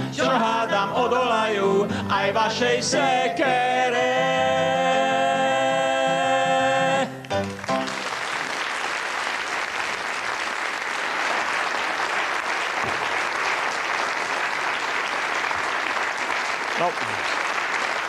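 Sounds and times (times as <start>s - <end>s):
audience applauding: 7.3s - 18.0s.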